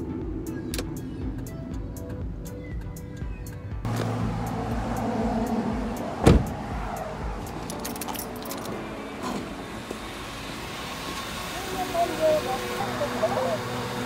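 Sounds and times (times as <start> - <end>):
footsteps on asphalt: 3.3 - 8.2, 9.2 - 10.3
car door shutting: 3.9 - 4.4, 5.3 - 10.1
keys jangling: 7.5 - 9.4.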